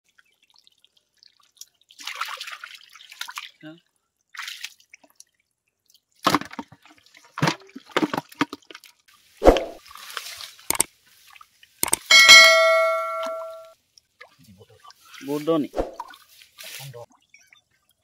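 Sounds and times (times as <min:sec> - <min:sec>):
metallic clang ringing: 0:12.0 - 0:13.7.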